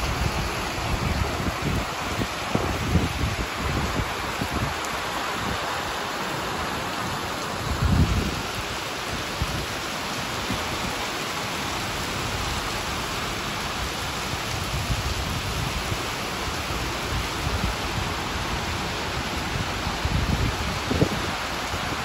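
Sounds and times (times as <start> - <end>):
rain falling on wet paving: 0.0 - 22.0.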